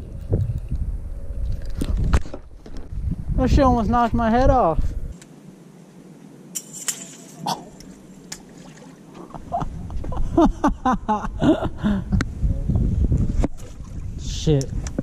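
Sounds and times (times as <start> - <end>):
wind buffeting microphone: 0.0 - 5.2, 9.2 - 15.0.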